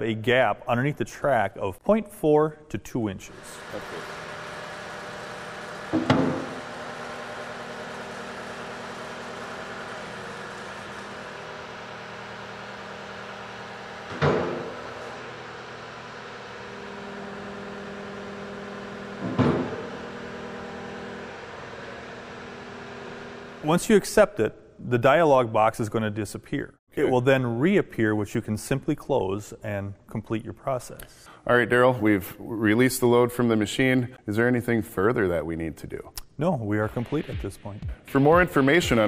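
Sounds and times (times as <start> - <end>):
loud clunks: 5.9 - 6.6, 14.1 - 15.2, 19.2 - 20.0.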